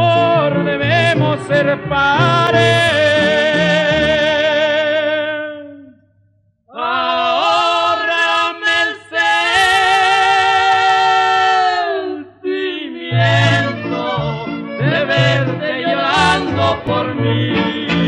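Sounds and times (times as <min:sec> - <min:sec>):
mariachi band playing: 0:00.0 - 0:04.7, 0:13.1 - 0:18.0.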